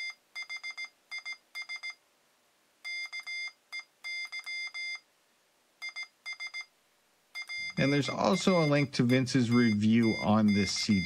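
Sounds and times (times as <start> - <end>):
morse code beeps: 0.0 - 2.0, 2.9 - 5.0, 5.8 - 6.7, 7.4 - 11.0.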